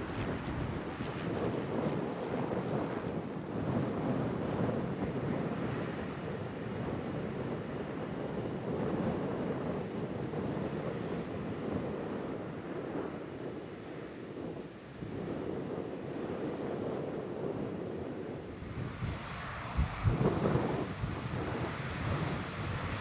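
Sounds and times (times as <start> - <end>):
jet engines roaring: 0.0 - 7.2
wind on microphone: 0.0 - 23.0.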